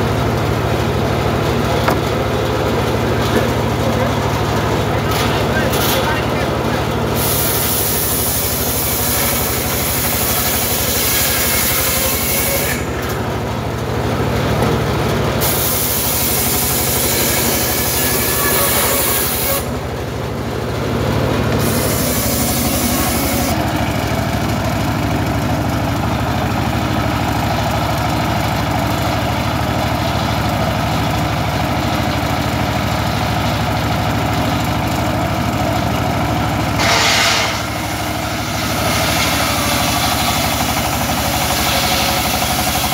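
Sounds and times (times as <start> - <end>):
circular saw bench running: 0.0 - 42.9
saw blade cutting hiss: 7.2 - 12.8, 15.4 - 19.7, 21.6 - 23.6, 36.8 - 42.9.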